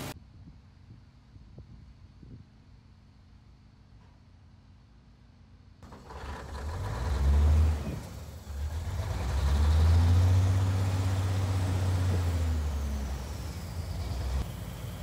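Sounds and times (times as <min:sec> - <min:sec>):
truck engine starting and revving: 0:05.8 - 0:15.0.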